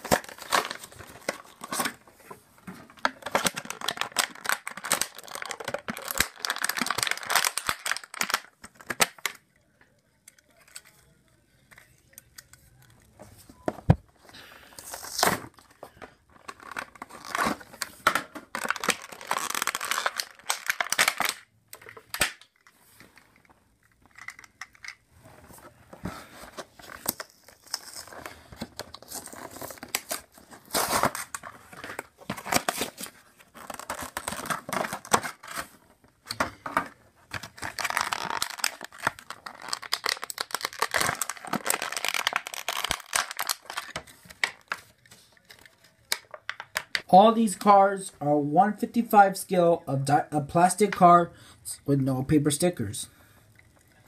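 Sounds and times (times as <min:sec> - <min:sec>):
packaging being torn and crinkled: 0:00.0 - 0:02.0, 0:02.9 - 0:09.4, 0:14.8 - 0:22.7, 0:26.7 - 0:36.3, 0:37.3 - 0:47.0.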